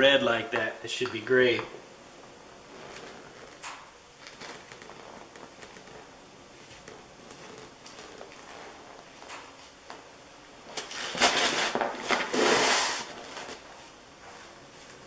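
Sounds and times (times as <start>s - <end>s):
rough crackling scrape: 2.6s - 9.6s, 10.6s - 15.0s.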